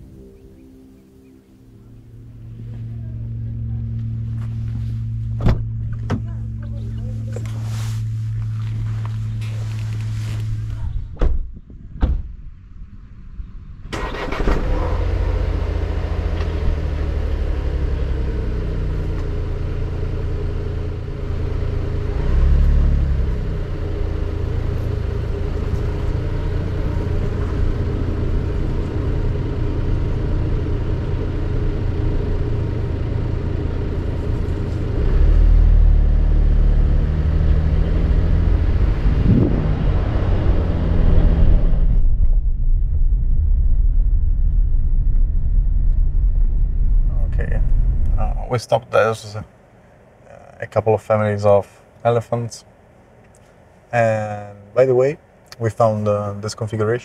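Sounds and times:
car engine running: 2.0s - 11.2s, 14.0s - 49.8s.

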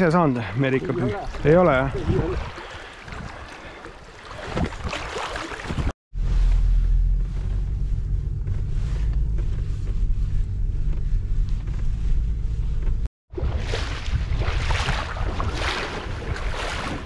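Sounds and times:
wind buffeting microphone: 1.1s - 3.6s, 13.4s - 17.0s.

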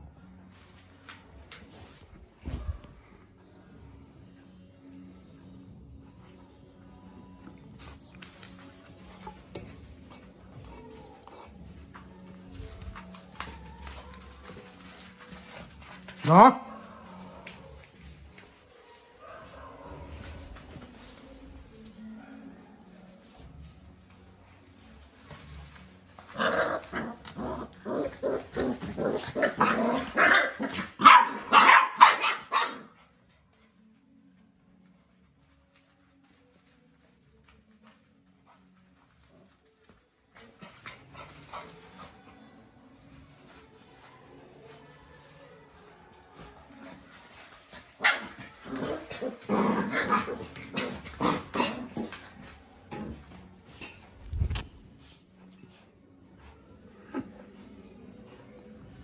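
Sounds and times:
puppies barking and growling: 26.0s - 33.1s, 47.0s - 52.5s.

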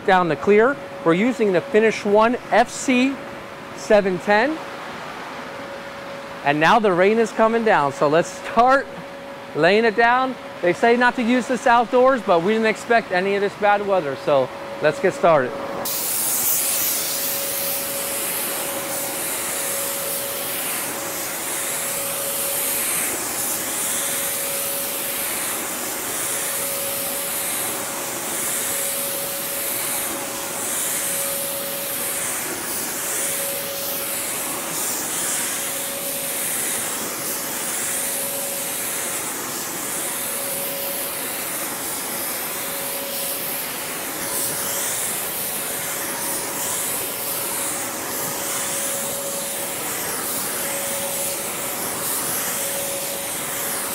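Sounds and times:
blower fan whine: 0.0s - 53.9s
spray gun hissing: 15.8s - 53.9s.

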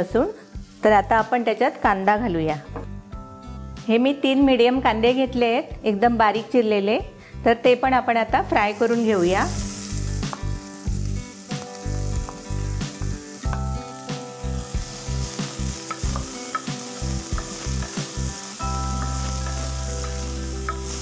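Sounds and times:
onions sizzling in oil: 0.0s - 2.1s, 8.4s - 21.0s
spatula scraping and tapping pot: 15.8s - 18.1s.

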